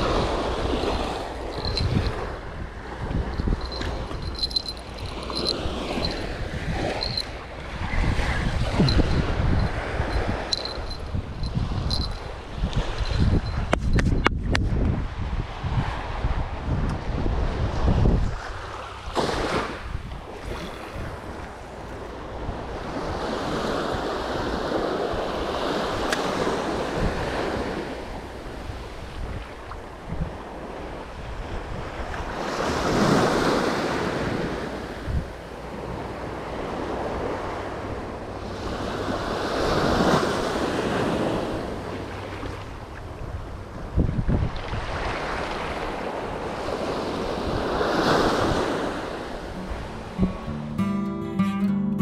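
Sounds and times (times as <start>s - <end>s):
ocean surf breaking: 0.0s - 12.2s
wind rumbling on microphone: 0.0s - 50.5s.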